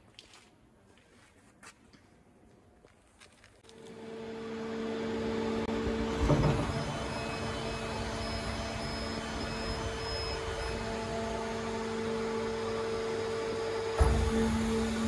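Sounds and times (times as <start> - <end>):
machinery humming: 3.7 - 15.0
machine clunk: 6.1 - 7.6, 14.0 - 14.6.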